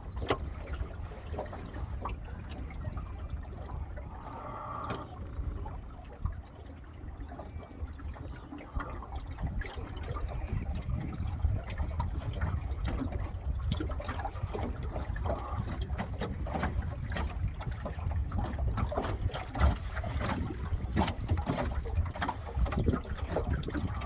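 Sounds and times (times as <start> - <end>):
low rumble of wind and motion: 0.0 - 24.0
water slapping against metal hull: 0.0 - 24.0.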